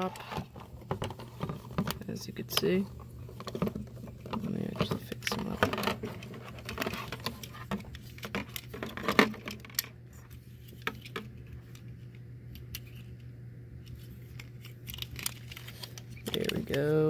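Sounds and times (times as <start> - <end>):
plastic toy parts clicking: 14.3 - 16.9.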